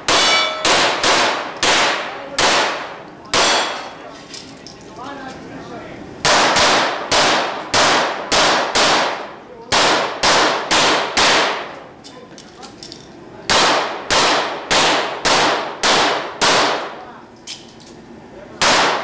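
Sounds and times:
handgun shots echoing: 0:00.0 - 0:03.9, 0:06.2 - 0:11.8, 0:13.5 - 0:17.6, 0:18.6 - 0:19.0.

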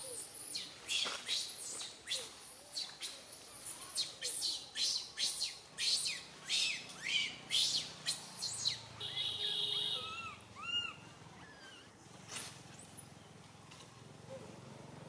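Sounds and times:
monkey chirping calls: 0:00.0 - 0:13.0
baby monkey screaming: 0:03.3 - 0:08.8, 0:10.0 - 0:11.9.

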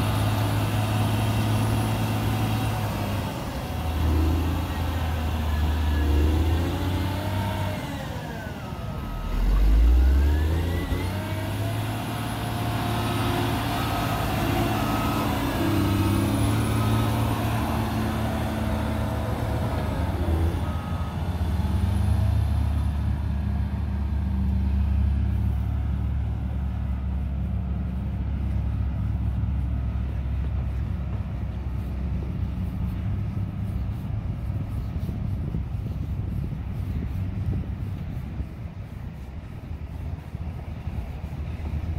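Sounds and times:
diesel engine running under load: 0:00.0 - 0:41.9
reversing alarm beeping: 0:13.8 - 0:17.4, 0:20.0 - 0:21.8.

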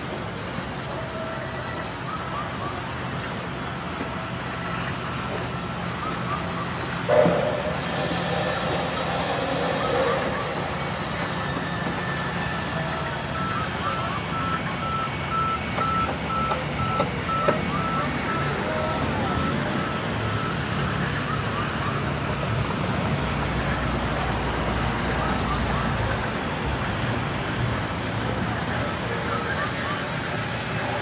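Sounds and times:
high electronic beep: 0:06.0 - 0:20.6.

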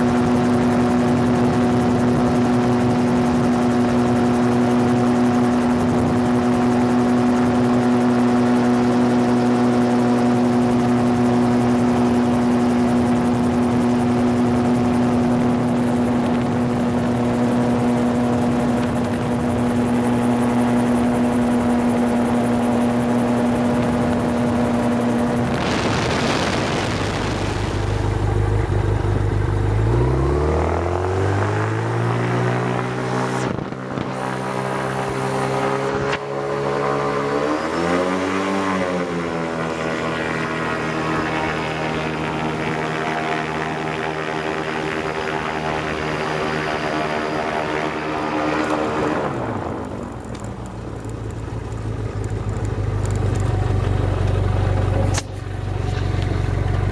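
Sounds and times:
aircraft engine and propeller droning: 0:00.0 - 0:56.9
rushing noise: 0:25.1 - 0:29.0.

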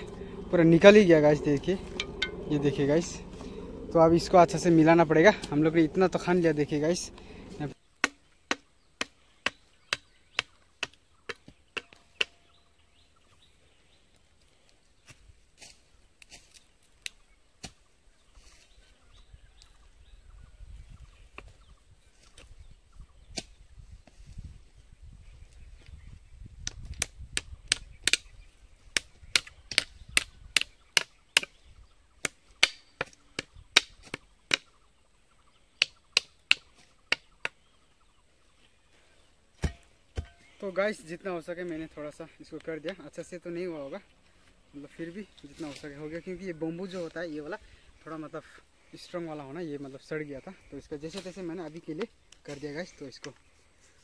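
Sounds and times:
hand tool chopping blows: 0:39.6 - 0:40.4
sharp hard knocks: 0:39.6 - 0:40.4.

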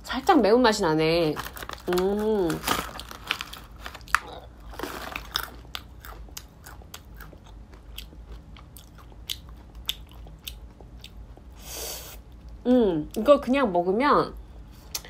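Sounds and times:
person chewing crunchy nuts: 0:01.4 - 0:11.6.

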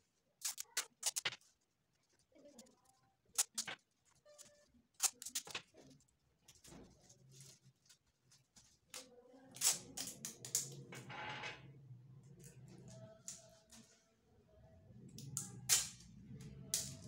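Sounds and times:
paper and tape crackling: 0:00.4 - 0:10.7.

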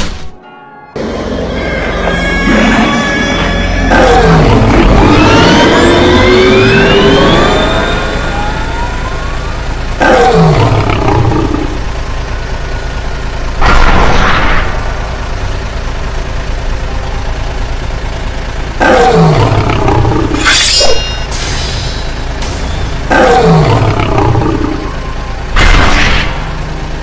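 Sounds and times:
engine rumble: 0:01.0 - 0:27.0
monster roars falling in pitch: 0:02.4 - 0:08.6, 0:10.0 - 0:11.8, 0:23.0 - 0:24.9
hissing screech: 0:20.2 - 0:22.1.

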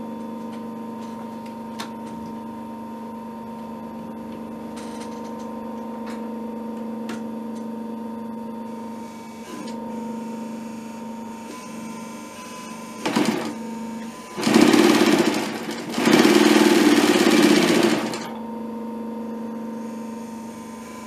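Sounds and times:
sewing machine motor humming: 0:12.9 - 0:18.4.

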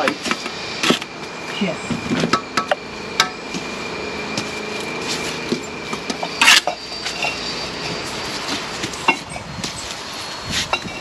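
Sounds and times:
faint humming tone: 0:00.0 - 0:11.0
trowel and bricks clinking: 0:06.1 - 0:07.5
trowel scrape: 0:06.1 - 0:11.0.

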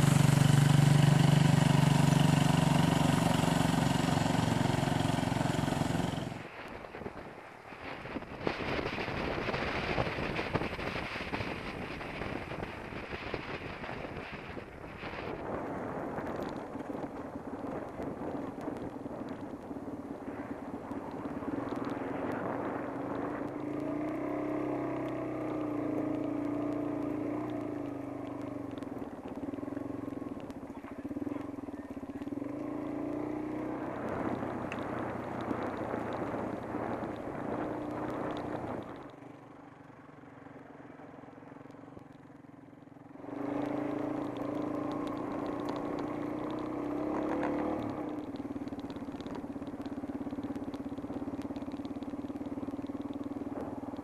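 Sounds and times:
bike tires rolling: 0:00.0 - 0:54.0
wind noise: 0:06.4 - 0:24.7, 0:33.8 - 0:39.2.

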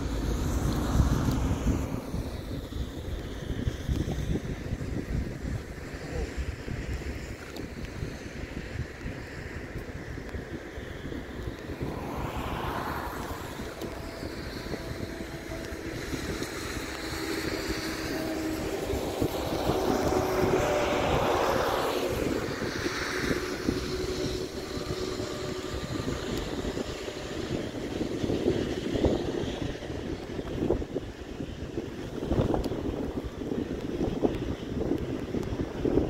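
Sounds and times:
aircraft engine noise: 0:00.0 - 0:36.0
wind buffeting microphone: 0:00.0 - 0:36.0.

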